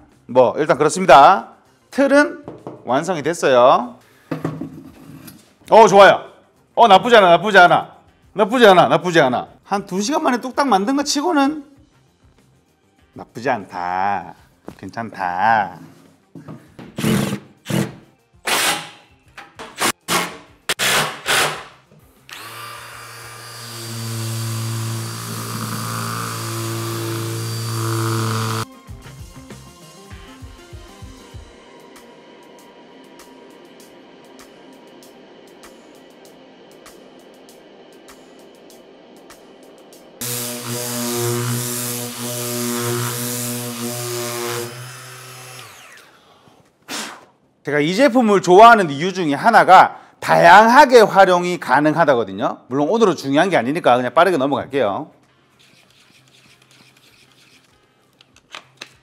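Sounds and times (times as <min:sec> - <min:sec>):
power tool motor running: 0:22.3 - 0:28.6, 0:40.2 - 0:46.1.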